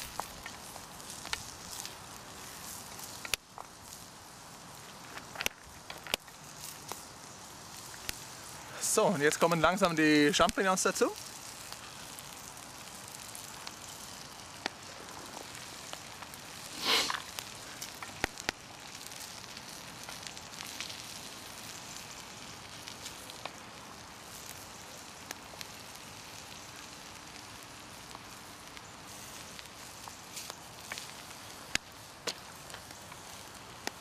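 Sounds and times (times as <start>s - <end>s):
food sizzling in a pan: 0.0s - 34.0s
short loud hiss: 16.6s - 17.8s.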